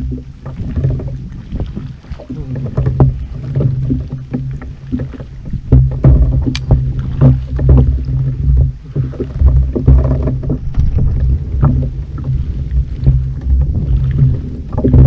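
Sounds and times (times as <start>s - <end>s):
water and wind rumble on hull: 0.0s - 15.0s
small knocks: 2.6s - 12.4s.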